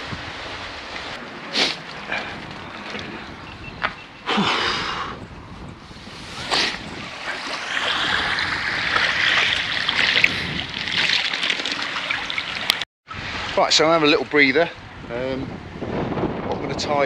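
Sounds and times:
wind on microphone: 0.0 - 11.4, 13.1 - 17.0
seawater sloshing and lapping: 0.4 - 3.8, 5.8 - 12.8.

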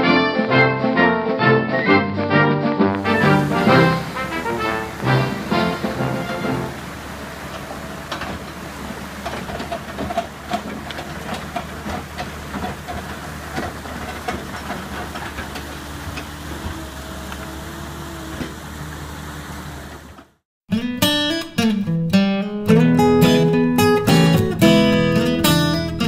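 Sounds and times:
excavator diesel engine running: 2.9 - 20.4
short clanks and knocks: 4.9 - 17.6.

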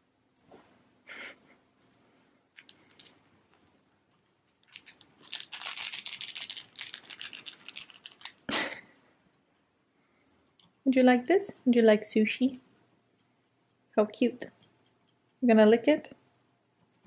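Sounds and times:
soft clicks: 1.7 - 2.8
plush toy rustling and crinkling: 2.6 - 3.3, 4.5 - 8.6.

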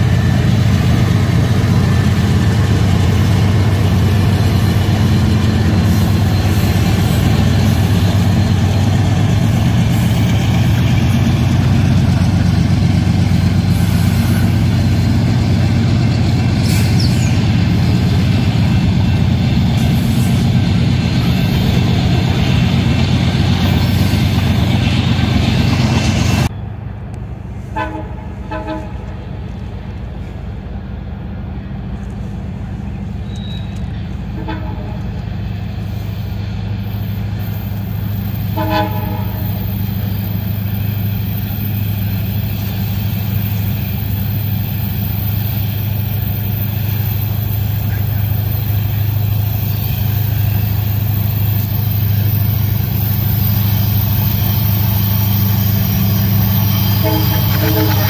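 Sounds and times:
diesel locomotive drone: 0.0 - 58.0
distant train horn blasts: 27.6 - 29.3, 33.3 - 35.2, 38.4 - 39.8, 56.6 - 58.0.

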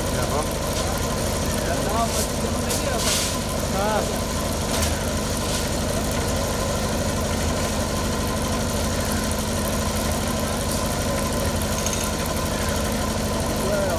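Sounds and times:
concrete mixer engine running: 0.0 - 13.9.

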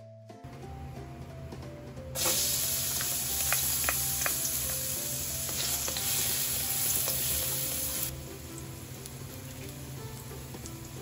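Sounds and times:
garlic sizzling in hot oil: 2.2 - 11.0
spatula clicking against pan: 3.0 - 4.5.

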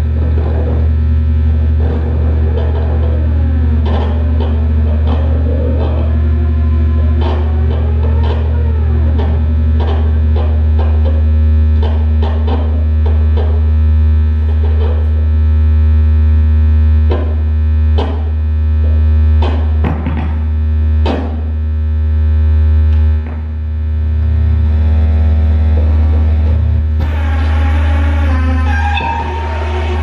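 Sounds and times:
low synthesizer drone: 0.0 - 30.0
sharp clicks and clattering hits: 6.9 - 15.5, 17.0 - 21.8, 22.8 - 24.0
held higher synth tones: 26.4 - 30.0.

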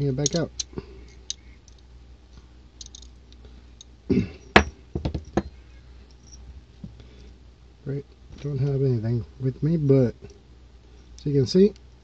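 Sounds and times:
metallic clicks of steel parts: 0.0 - 1.9, 2.8 - 5.5.

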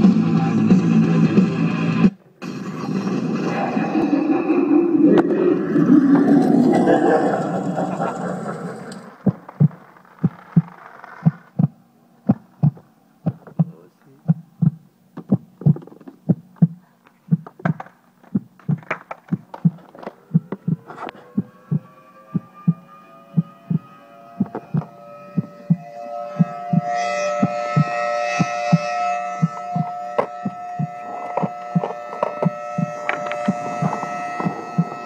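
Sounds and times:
rising drawn-out tone: 0.0 - 13.1, 18.6 - 35.0
heartbeat double thump: 9.2 - 13.7, 14.3 - 22.8, 24.4 - 25.8, 27.7 - 28.8, 29.4 - 31.0, 31.7 - 35.0.

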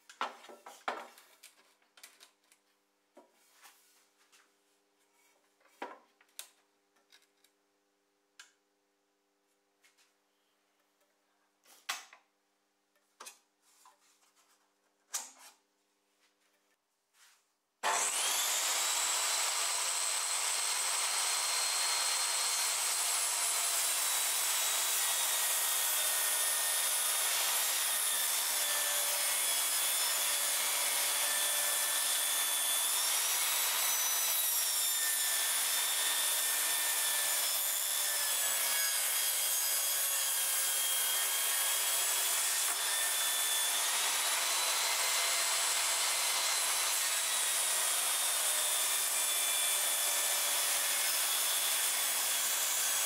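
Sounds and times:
table saw ripping wood: 17.8 - 53.0.

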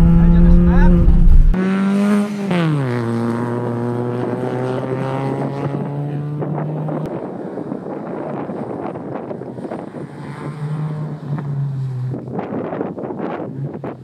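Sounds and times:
rough rushing noise: 0.0 - 1.6
race car engine running hard: 0.0 - 12.6.

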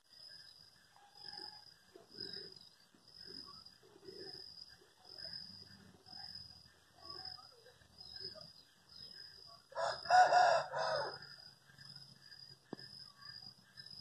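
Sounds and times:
rooster crowing: 9.7 - 11.4.

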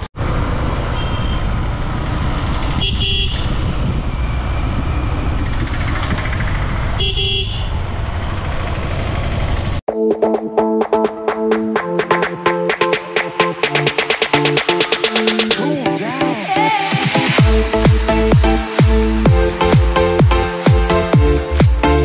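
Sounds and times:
road vehicle rumble: 0.0 - 9.9
vehicle horn: 0.9 - 1.5, 2.6 - 3.7, 7.0 - 7.8
wind noise: 1.1 - 9.7
music with a beat: 9.9 - 22.0.

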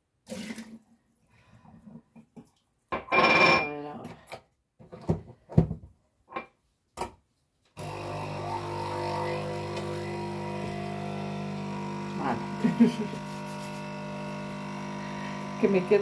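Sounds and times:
kitchen appliance humming: 7.8 - 16.0.

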